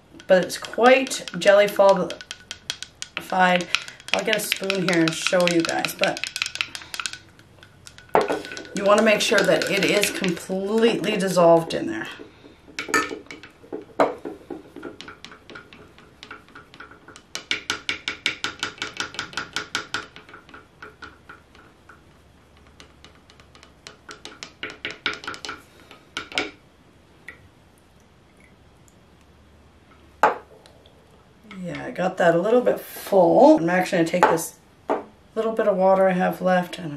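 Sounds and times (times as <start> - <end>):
wooden stick knocking on glass beaker: 0.2 - 25.6.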